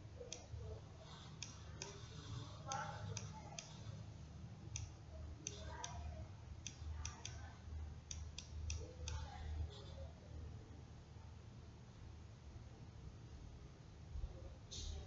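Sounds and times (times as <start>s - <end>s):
computer mouse clicking: 1.2s - 4.0s, 4.7s - 6.0s, 8.1s - 9.4s.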